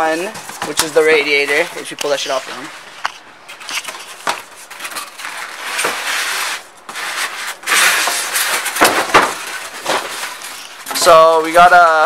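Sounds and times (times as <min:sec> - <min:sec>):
cardboard and foam scraping: 0:03.8 - 0:10.8.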